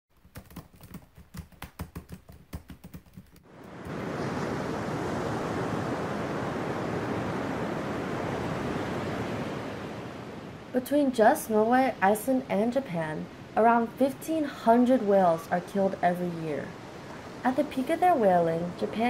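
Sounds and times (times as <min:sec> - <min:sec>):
keyboard typing: 0:00.2 - 0:03.4
ocean surf rushing: 0:03.5 - 0:10.8, 0:11.5 - 0:19.0.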